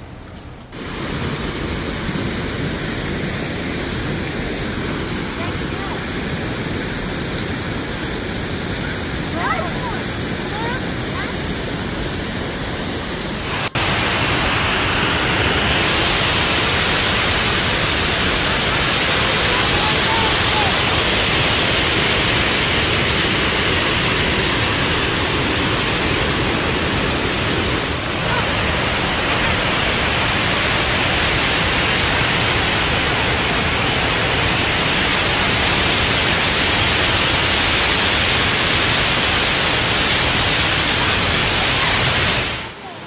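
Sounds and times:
creek rapids: 0:00.7 - 0:43.0
waterfall rushing: 0:00.7 - 0:43.0.

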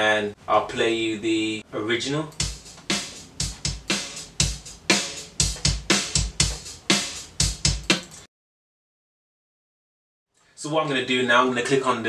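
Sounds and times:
sampled drum loop: 0:02.2 - 0:08.3.

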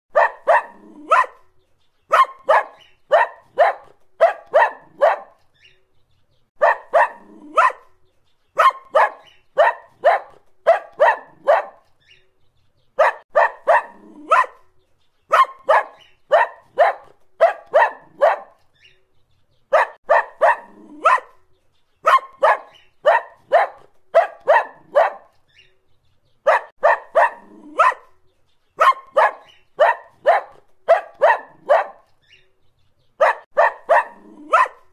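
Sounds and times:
dog barking: 0:00.1 - 0:01.5, 0:02.1 - 0:05.5, 0:06.6 - 0:08.0, 0:08.6 - 0:11.9, 0:13.0 - 0:14.7, 0:15.3 - 0:18.7, 0:19.7 - 0:21.4, 0:22.0 - 0:25.4, 0:26.4 - 0:28.2, 0:28.8 - 0:32.2, 0:33.2 - 0:34.9.

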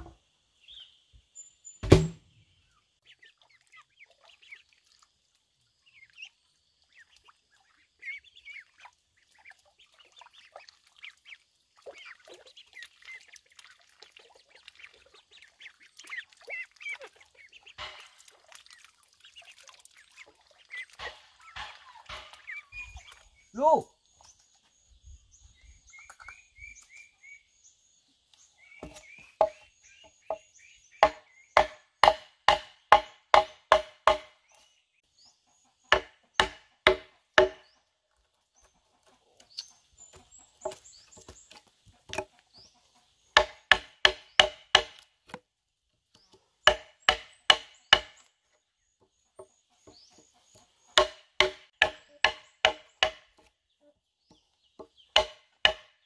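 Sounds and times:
mallet striking chisel: 0:31.0 - 0:34.3, 0:35.9 - 0:37.6, 0:43.4 - 0:45.0, 0:46.7 - 0:48.2, 0:51.0 - 0:53.2, 0:55.2 - 0:55.9.

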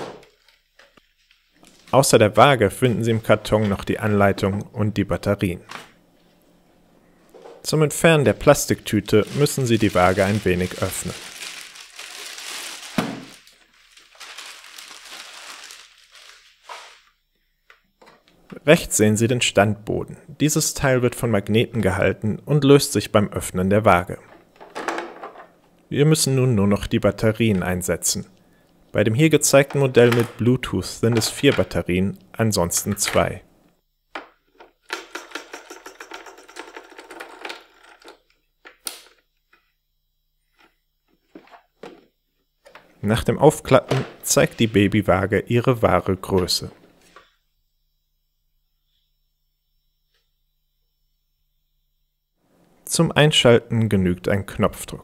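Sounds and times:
plastic bag crinkling: 0:08.3 - 0:17.1.

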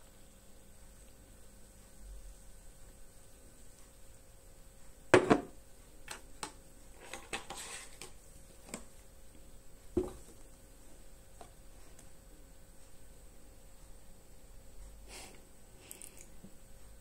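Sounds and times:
cartons knocking on table: 0:05.1 - 0:05.5, 0:10.0 - 0:10.4.

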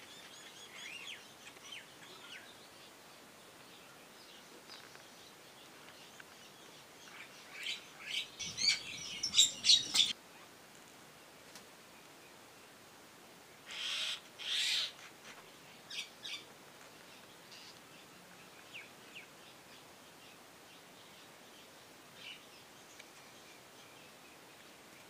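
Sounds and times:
faint bird chirps and whistles: 0:07.1 - 0:10.2
mynas harsh rasping calls: 0:07.6 - 0:10.1, 0:13.7 - 0:14.9.

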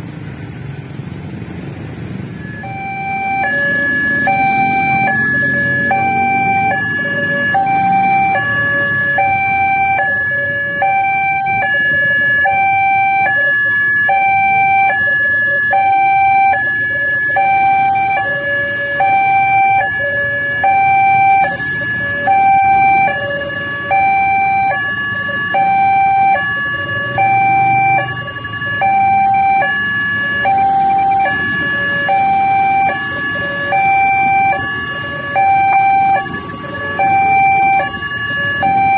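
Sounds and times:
idling motorbikes and cars: 0:00.0 - 0:38.9.

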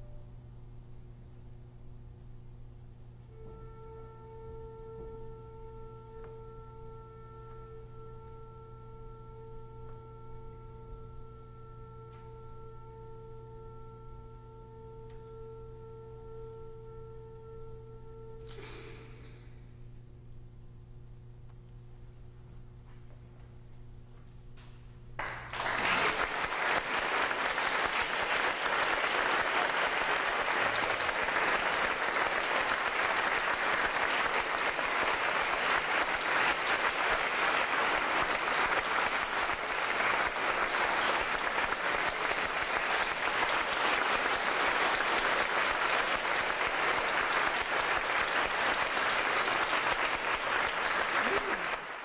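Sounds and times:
audience applauding: 0:25.2 - 0:52.0.

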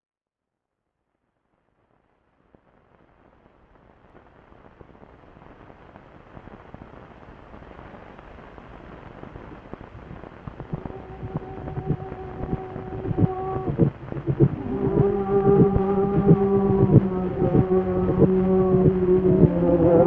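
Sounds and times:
dense crackling noise: 0:01.2 - 0:20.0
steady low tone: 0:10.0 - 0:20.0.

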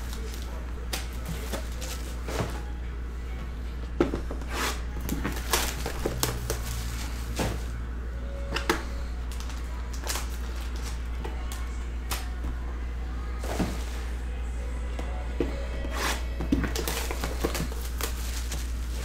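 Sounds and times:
plastic wrap crinkling and tearing: 0:00.0 - 0:02.3, 0:05.1 - 0:07.7, 0:09.2 - 0:12.3, 0:16.1 - 0:19.0
steady low hum: 0:00.0 - 0:19.0.

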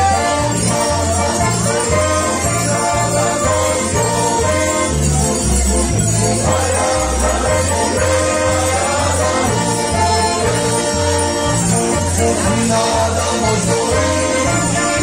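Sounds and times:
jingling percussion: 0:00.0 - 0:15.0
lively folk dance music: 0:00.0 - 0:15.0.

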